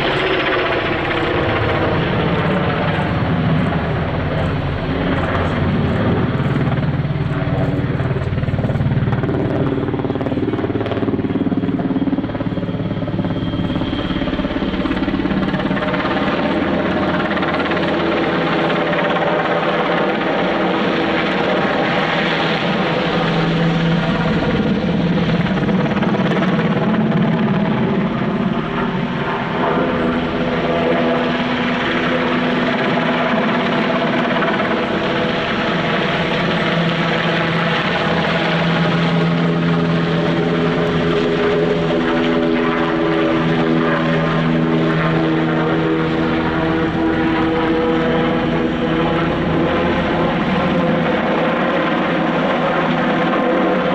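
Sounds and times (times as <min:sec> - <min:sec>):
helicopter flying overhead: 0:00.0 - 0:53.9.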